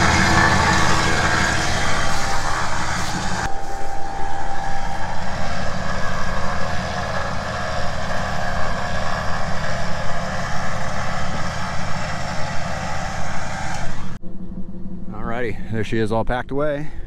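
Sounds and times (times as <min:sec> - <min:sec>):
electric winch whining: 0:00.0 - 0:15.2.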